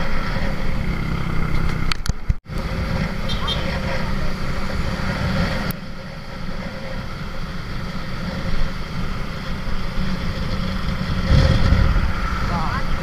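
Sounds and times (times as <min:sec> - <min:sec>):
motorcycle engine running: 0:00.0 - 0:13.0
tyres on road: 0:00.0 - 0:13.0
wind buffeting microphone: 0:08.6 - 0:13.0.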